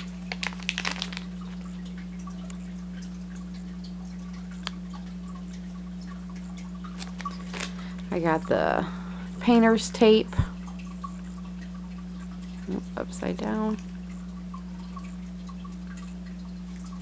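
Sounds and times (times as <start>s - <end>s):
plastic packet crinkling: 0.0s - 1.8s, 6.9s - 8.5s
steady low hum: 0.0s - 17.0s.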